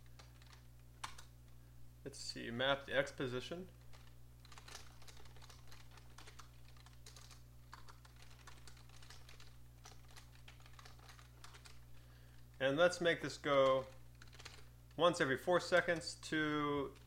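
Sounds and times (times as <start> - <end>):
typing on a keyboard: 0.0 - 1.3, 3.9 - 11.8, 13.7 - 14.7
low steady hum: 0.0 - 17.0.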